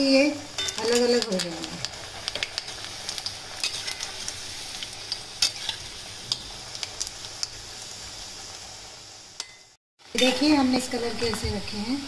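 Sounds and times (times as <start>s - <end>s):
dough sizzling in hot oil: 0.0s - 12.0s
spatula clicking and scraping pan: 0.6s - 7.6s.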